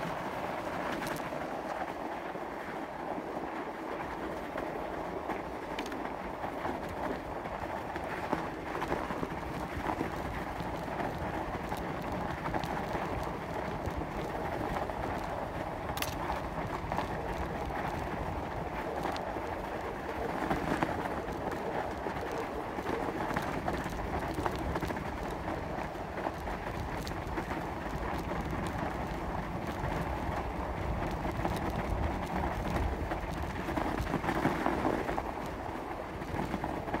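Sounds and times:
bike rattles and clicks: 0.0 - 1.9, 4.2 - 37.0
bicycle tyres crunching snow: 0.0 - 2.4, 3.4 - 37.0.

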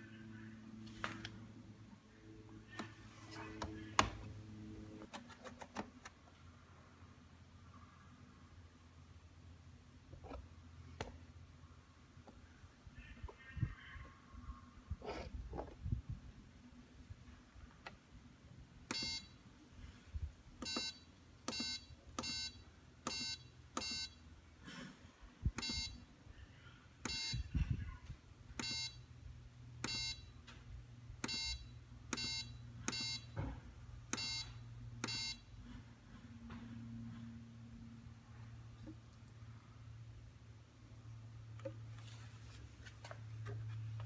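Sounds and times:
low steady hum: 0.0 - 44.0
washing machine panel beeps: 18.9 - 19.4, 20.6 - 24.2, 25.6 - 26.0, 27.0 - 27.5, 28.6 - 29.0, 29.8 - 30.3, 31.2 - 33.4, 34.1 - 35.5.

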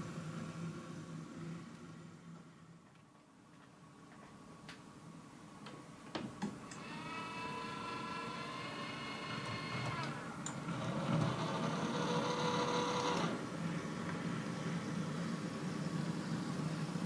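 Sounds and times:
small electric motor whining: 6.8 - 13.4.

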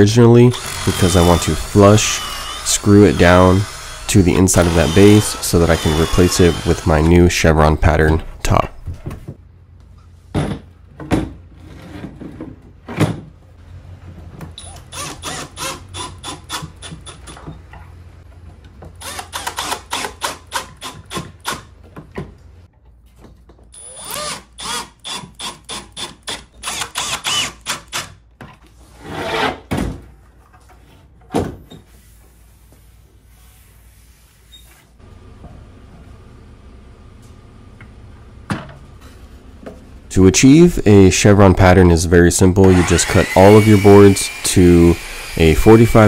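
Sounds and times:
cordless drill driving screws: 0.5 - 7.2, 14.6 - 17.4, 19.0 - 21.6, 23.8 - 28.1, 42.6 - 46.0
fast clicking of drill: 19.0 - 21.6, 23.8 - 28.1, 42.6 - 45.4.

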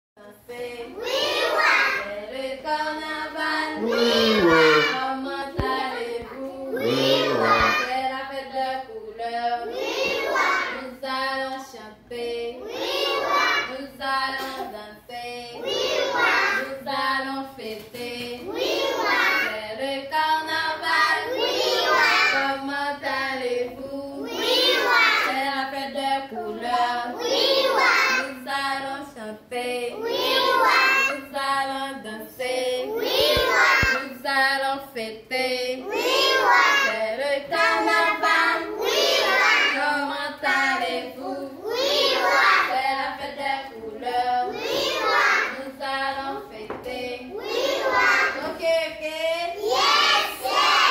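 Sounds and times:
young children singing: 0.2 - 50.9.

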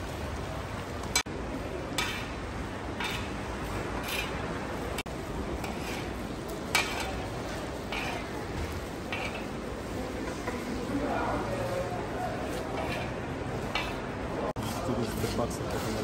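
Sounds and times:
metal skimmer scraping cauldron: 4.0 - 4.5.

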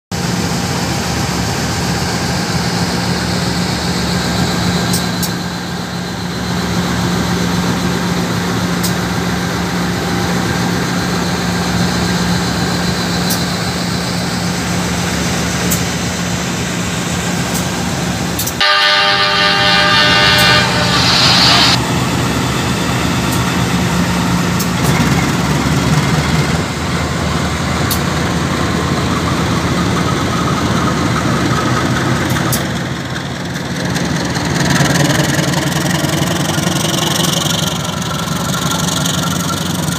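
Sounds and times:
locomotive horn blast: 18.6 - 21.8
locomotive engine idling: 21.2 - 39.9.

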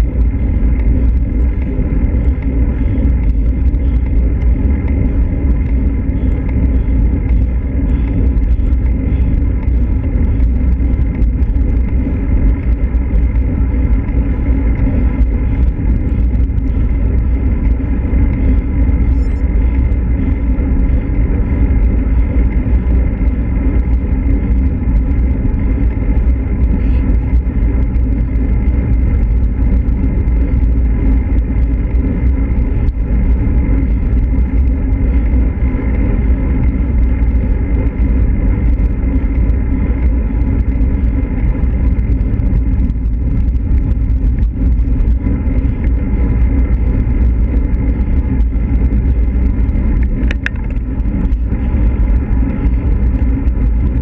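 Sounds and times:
bike road noise on asphalt: 0.0 - 54.0
wind rumble: 0.0 - 54.0.

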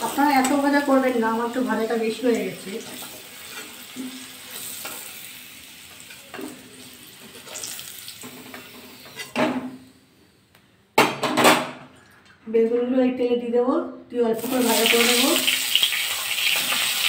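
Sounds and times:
potato wedges sizzling in oil: 0.0 - 9.4, 14.4 - 17.0
metal spatula scraping pan: 8.5 - 9.4.

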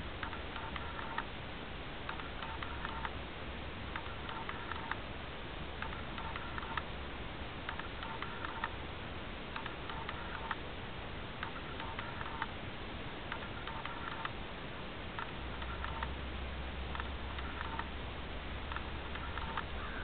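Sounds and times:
patterned chirping clicks and tones: 0.2 - 1.3, 2.1 - 3.2, 3.9 - 5.0, 5.8 - 6.9, 7.6 - 8.8, 9.5 - 10.6, 11.4 - 12.5, 13.3 - 14.4, 15.2 - 16.2, 16.9 - 18.0, 18.6 - 20.0.

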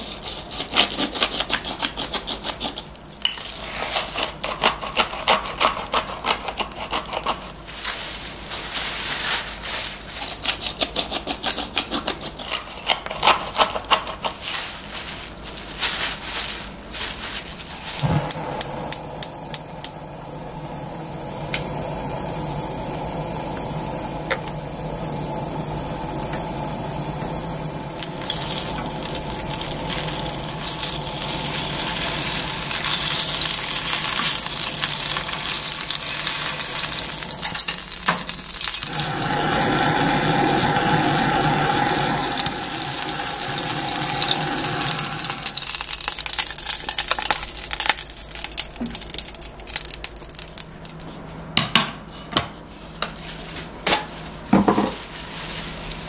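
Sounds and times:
pepper grinder grinding: 0.0 - 7.6, 10.2 - 14.4, 28.0 - 51.1
stove hum: 0.0 - 56.0
fish sizzling in a pan: 28.0 - 50.6.

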